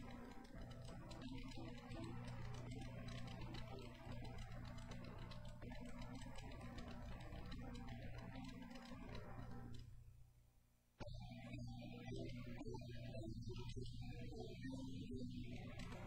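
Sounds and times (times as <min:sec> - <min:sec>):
digital piano played softly: 0:00.0 - 0:09.8, 0:11.0 - 0:16.0.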